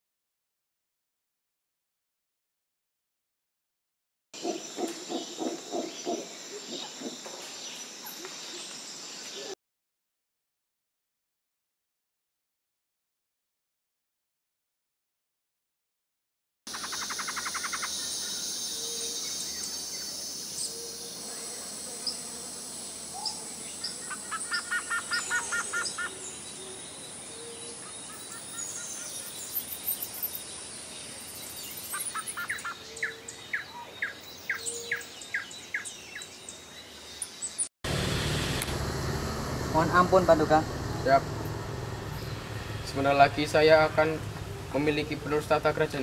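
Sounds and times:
birds chirping and singing: 0:04.4 - 0:09.5, 0:16.7 - 0:37.7, 0:41.2 - 0:46.0
outdoor background noise: 0:04.4 - 0:09.6, 0:16.7 - 0:46.0.

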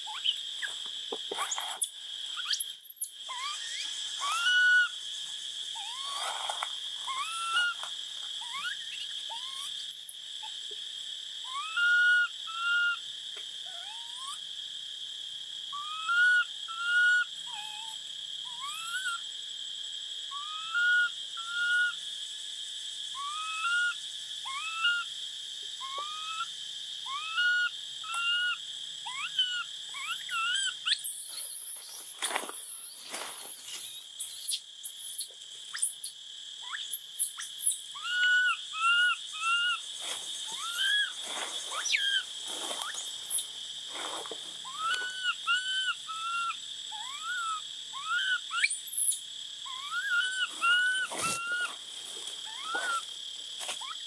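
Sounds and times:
infant monkey coo calls: 0:00.0 - 0:05.0, 0:05.7 - 0:10.7, 0:11.4 - 0:14.5, 0:15.7 - 0:19.3, 0:20.3 - 0:22.0, 0:23.1 - 0:25.1, 0:25.8 - 0:31.8, 0:34.2 - 0:39.8, 0:40.4 - 0:43.5, 0:44.6 - 0:51.8, 0:52.4 - 0:53.1, 0:53.8 - 0:54.0
high insect drone: 0:00.0 - 0:54.0.

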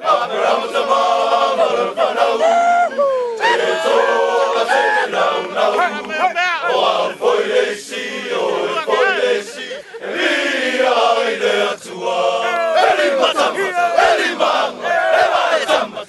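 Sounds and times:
men singing and chanting: 0:00.0 - 0:16.0
men shouting wavering calls: 0:02.2 - 0:07.0, 0:08.5 - 0:10.0, 0:12.3 - 0:14.2.

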